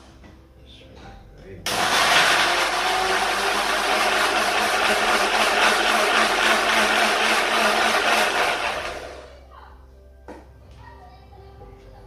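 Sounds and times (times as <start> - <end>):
electric blender running: 1.7 - 9.4.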